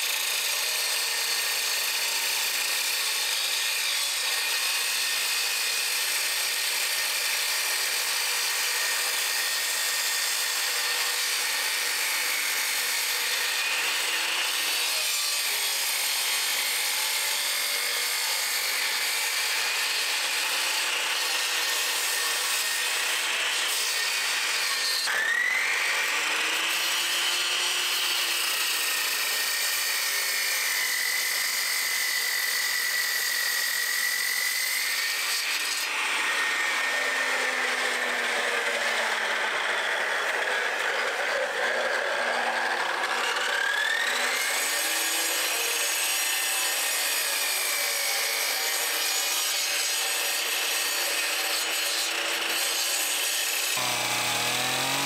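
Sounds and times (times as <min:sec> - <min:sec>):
saw grinding through stone: 0:00.0 - 0:55.0.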